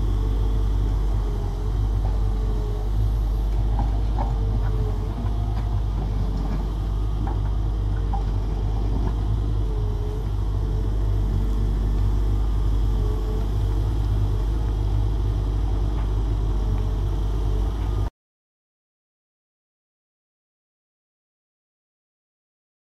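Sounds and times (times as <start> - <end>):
diesel engine running: 0.0 - 18.1
faint hydraulic whine: 0.0 - 18.1.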